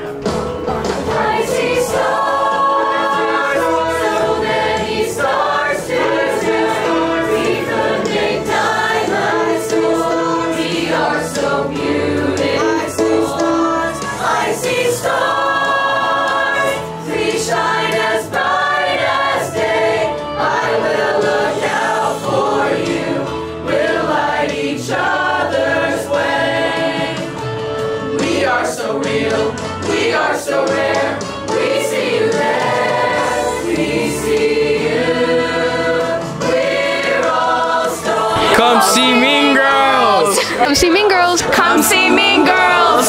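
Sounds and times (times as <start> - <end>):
group singing in chorus: 0.7 - 43.0.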